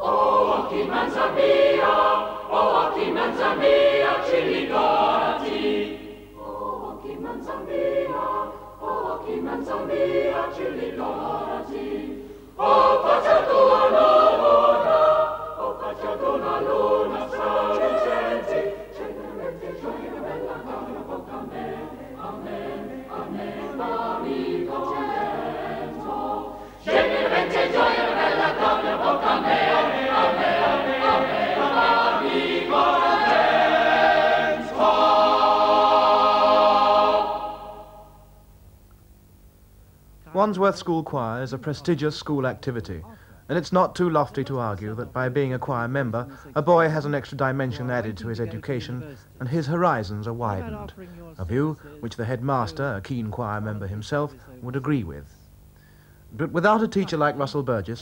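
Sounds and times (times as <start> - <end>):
boys' choir singing: 0.0 - 38.2.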